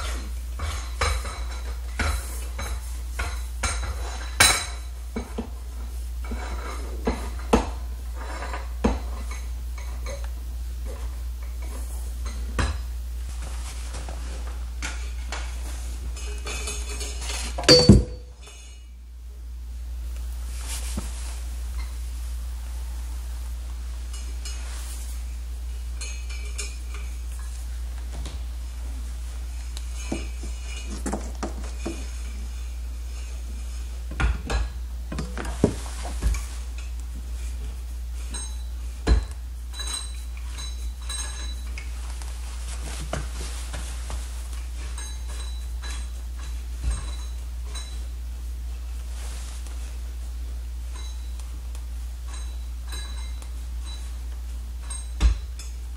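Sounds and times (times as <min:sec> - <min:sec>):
steady low hum: 0:00.0 - 0:55.9
metal lamp parts clinking: 0:16.2 - 0:18.9, 0:39.7 - 0:41.9, 0:44.8 - 0:48.1, 0:52.3 - 0:54.2, 0:54.8 - 0:55.8
sharp metallic clank: 0:17.6 - 0:18.6
sharp metallic taps and rings: 0:17.7 - 0:18.4.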